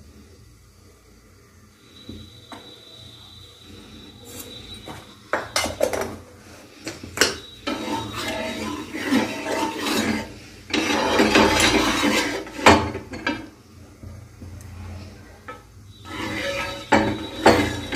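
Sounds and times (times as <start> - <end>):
wooden spatula scraping a griddle: 7.5 - 13.5, 14.7 - 17.9.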